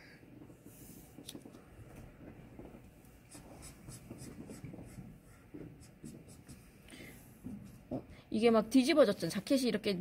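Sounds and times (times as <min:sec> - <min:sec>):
marker scratching on paper: 0:03.3 - 0:06.8.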